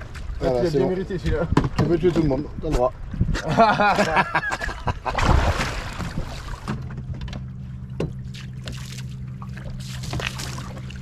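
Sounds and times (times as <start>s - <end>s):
boat motor starting and humming: 3.4s - 11.0s.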